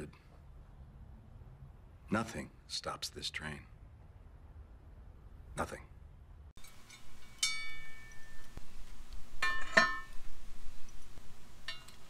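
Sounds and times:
metal tools clinking: 6.6 - 10.3, 11.6 - 12.0.

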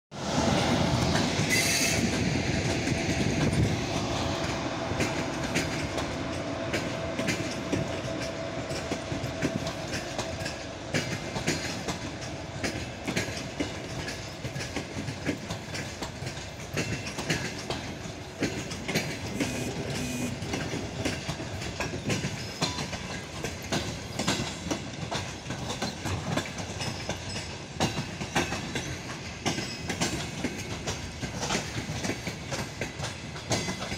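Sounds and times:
train wheels clacking over rail joints: 0.4 - 33.9.

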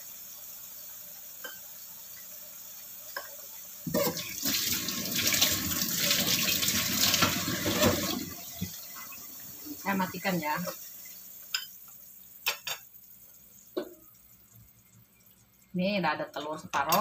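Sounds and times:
faint steady hiss: 0.0 - 17.0
tap water splashing into sink: 3.8 - 8.9.

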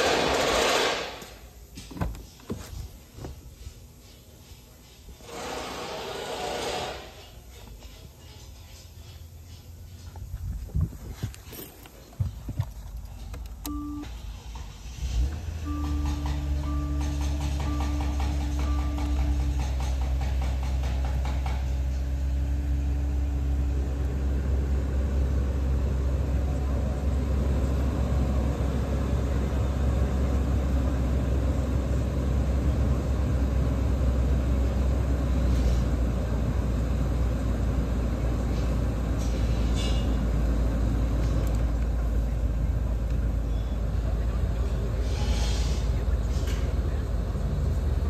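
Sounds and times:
car engine idling: 9.3 - 35.3.

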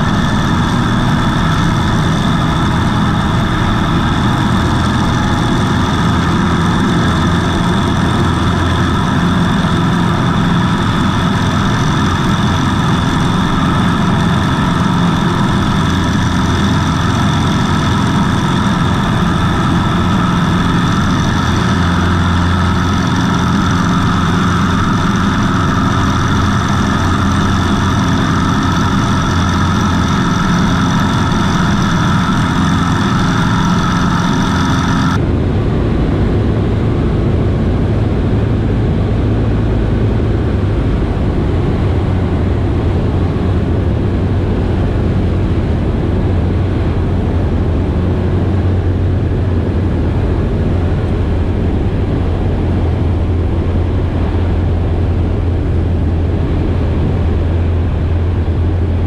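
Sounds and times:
light aircraft engine and propeller: 0.0 - 59.0.

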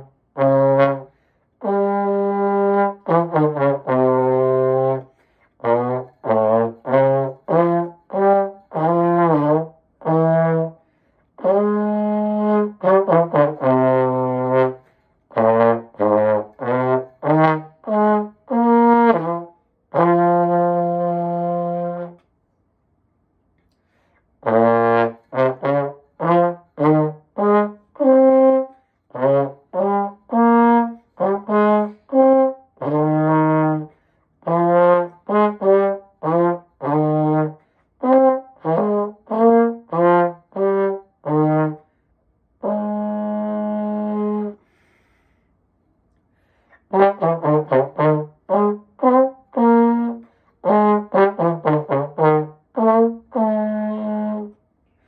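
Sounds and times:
trombone solo: 0.0 - 22.2, 24.4 - 41.9, 42.6 - 44.9, 46.8 - 54.6.

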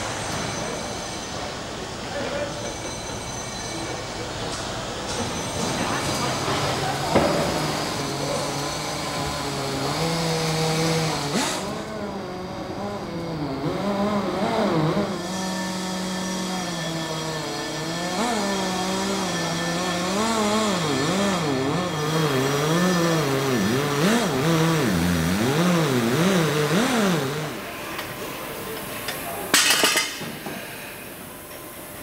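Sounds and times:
tube expander motor whine: 6.3 - 28.8.

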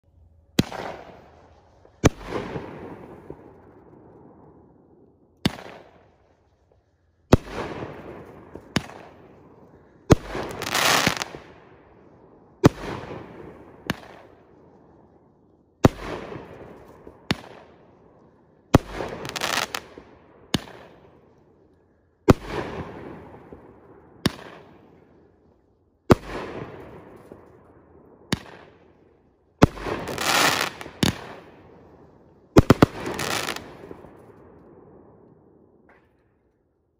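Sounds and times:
firework bangs with hiss: 10.1 - 11.6, 18.8 - 21.0, 29.6 - 31.5, 32.6 - 34.0.

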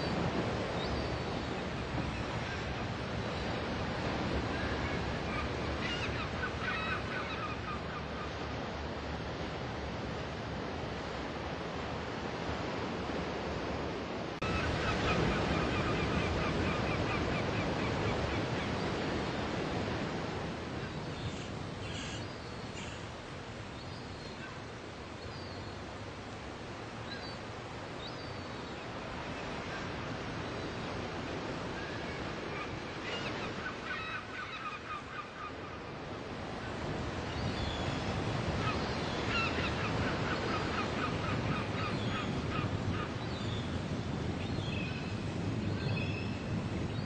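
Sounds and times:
sea surf: 0.0 - 47.0
birds calling: 20.9 - 23.1, 37.2 - 47.0.

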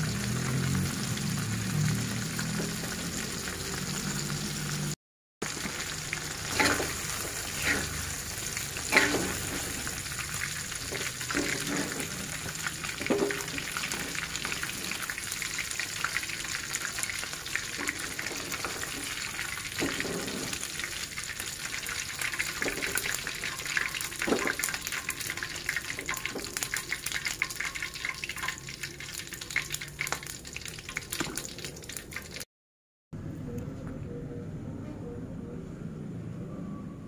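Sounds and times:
oil crackling and sizzling: 0.0 - 32.5
metal spatula scraping a wok: 5.5 - 15.3, 16.9 - 21.2, 21.8 - 27.9.

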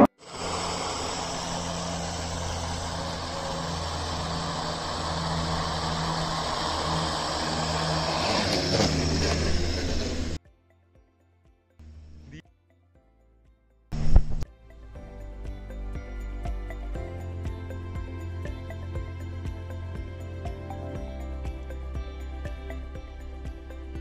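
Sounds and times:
quadcopter motors whirring: 0.0 - 10.4.

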